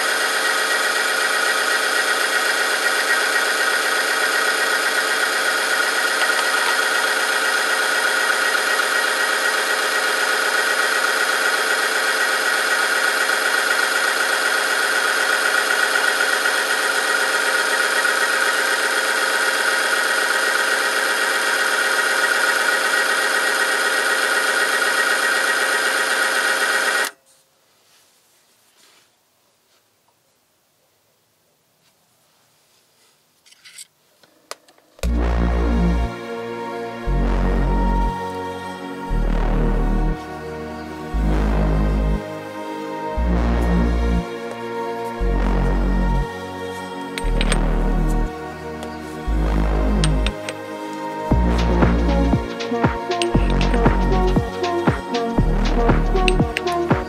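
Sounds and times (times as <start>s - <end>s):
machine motor whining grind: 0.0s - 27.1s, 35.0s - 57.0s.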